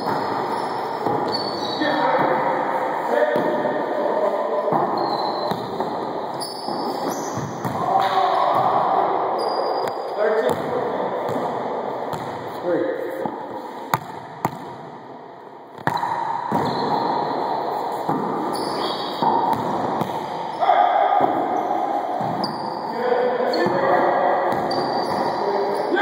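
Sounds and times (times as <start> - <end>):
sneakers squeaking on hardwood: 0.0 - 1.9, 4.7 - 7.7, 15.8 - 17.3, 17.9 - 19.7, 21.5 - 22.8, 24.5 - 26.0.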